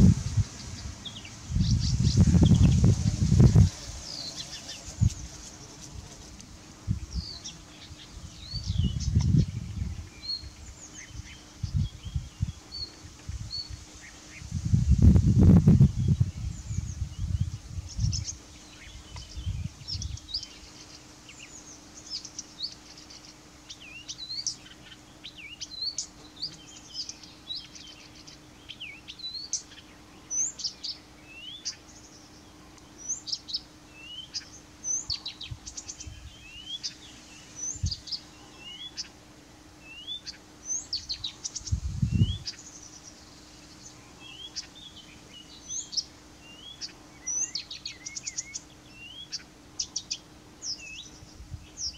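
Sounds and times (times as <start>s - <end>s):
low rumbles: 0.0s - 5.7s
warbler singing: 0.0s - 51.9s.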